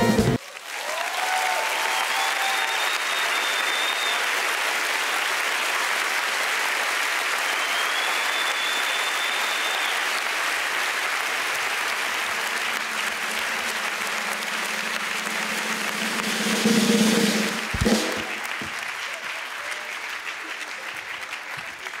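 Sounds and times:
audience applauding: 0:00.0 - 0:22.0
long high whistles: 0:01.8 - 0:04.3, 0:07.4 - 0:10.2.

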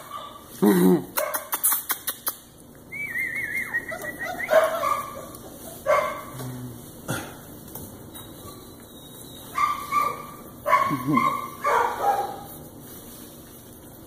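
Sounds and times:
puppies whining: 0:02.9 - 0:11.6
puppies yipping and barking: 0:03.2 - 0:06.3, 0:07.9 - 0:12.6.

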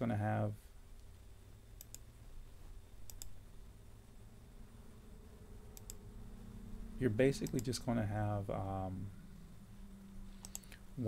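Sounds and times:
faint low hum: 0:00.0 - 0:11.0
computer mouse button clicking: 0:10.4 - 0:10.8.

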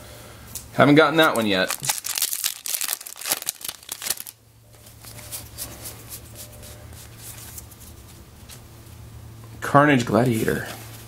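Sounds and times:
faint low hum: 0:00.0 - 0:11.0
cards rustling: 0:01.2 - 0:04.4
foil wrapper crinkling: 0:01.2 - 0:04.4.

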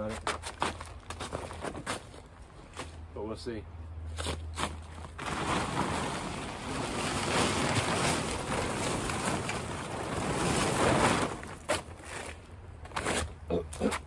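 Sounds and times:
plastic tarp dragged over leaves: 0:04.6 - 0:12.4.

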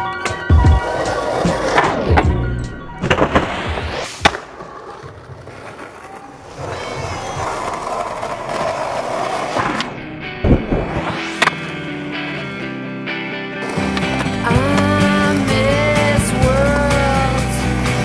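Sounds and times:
skateboard wheels rolling on asphalt: 0:00.0 - 0:18.0
skateboard landing impact: 0:00.3 - 0:11.8
skateboard clacks: 0:03.0 - 0:10.7, 0:13.6 - 0:18.0.

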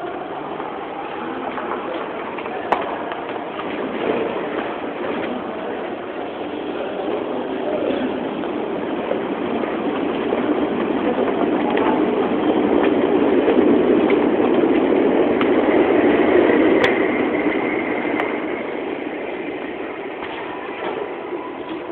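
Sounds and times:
train rumbling past: 0:00.0 - 0:21.9
steady high squeal: 0:15.6 - 0:21.9.

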